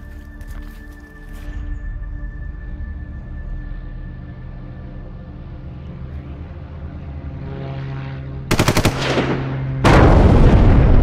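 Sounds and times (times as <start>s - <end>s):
dark film score: 0.0s - 11.0s
machine-gun fire: 8.5s - 10.3s.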